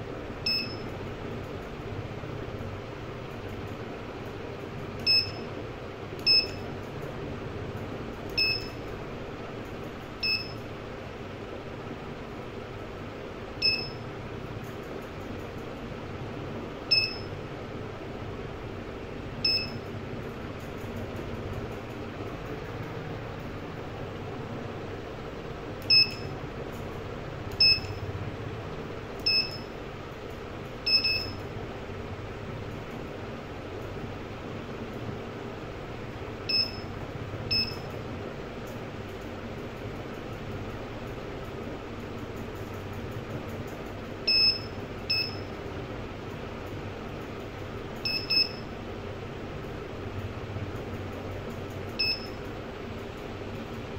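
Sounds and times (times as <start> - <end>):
steady low hum: 0.0 - 53.9
short high key-press beeps: 0.4 - 0.9, 5.0 - 5.5, 6.2 - 6.7, 8.3 - 8.8, 10.2 - 10.6, 13.6 - 14.0, 16.9 - 17.3, 19.4 - 19.9, 25.8 - 26.3, 27.5 - 28.0, 29.2 - 29.8, 30.8 - 31.4, 36.5 - 36.9, 37.5 - 38.0, 44.3 - 45.5, 48.0 - 48.7, 52.0 - 52.4.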